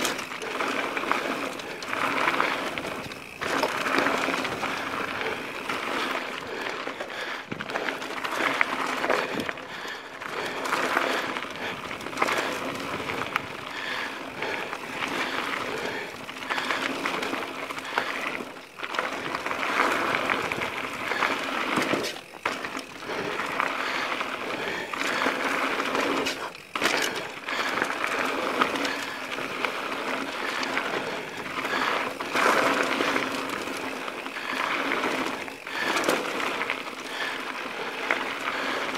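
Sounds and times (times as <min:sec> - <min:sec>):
tyres crunching over stones: 0:00.0 - 0:13.8
bike rattling and clicking: 0:00.0 - 0:38.9.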